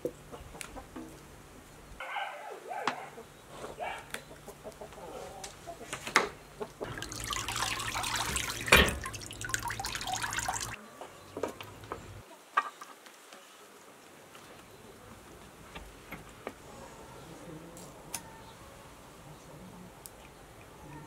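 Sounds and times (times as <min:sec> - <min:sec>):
loud splash: 0:06.8 - 0:10.8
water splashing in metal basin: 0:06.8 - 0:10.8.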